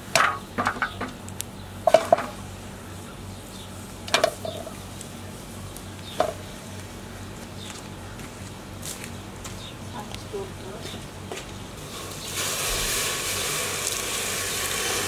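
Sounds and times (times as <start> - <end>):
meat knocking in metal pot: 0.0 - 2.4, 4.1 - 4.8, 6.2 - 6.4.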